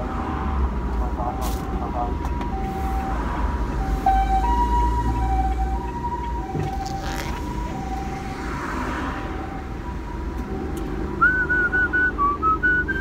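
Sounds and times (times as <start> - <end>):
car engine and road rumble: 0.0 - 13.0
two-tone ambulance siren: 1.2 - 13.0.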